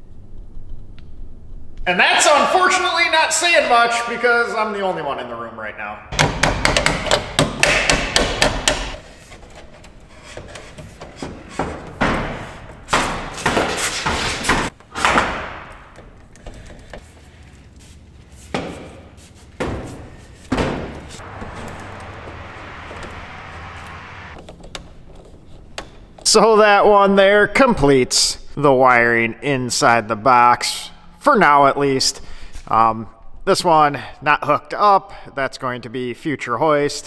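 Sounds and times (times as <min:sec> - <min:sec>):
hand tools knocking on metal: 0:06.2 - 0:09.0.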